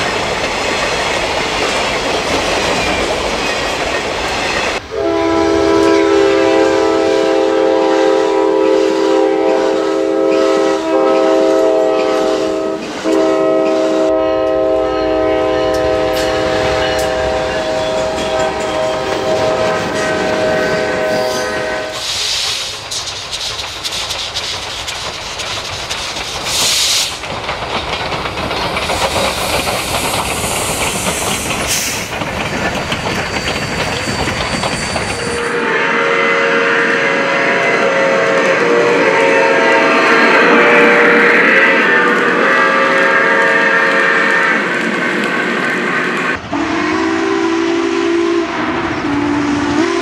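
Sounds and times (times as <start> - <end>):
train wheels clacking over rails: 0.0 - 14.8, 15.4 - 35.6
train horn chord: 4.9 - 22.0, 35.2 - 44.8, 46.4 - 50.0
short bursts of hiss: 21.2 - 24.9, 26.4 - 27.2.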